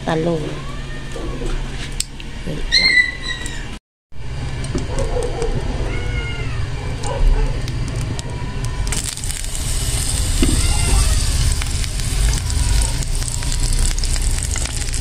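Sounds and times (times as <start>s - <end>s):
cat meowing: 5.7s - 7.2s, 10.4s - 11.7s
food sizzling in hot oil: 8.8s - 15.0s.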